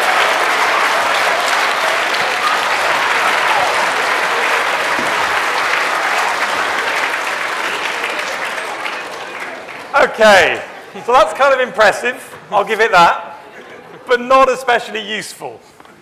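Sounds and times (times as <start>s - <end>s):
large audience clapping: 0.0s - 10.9s.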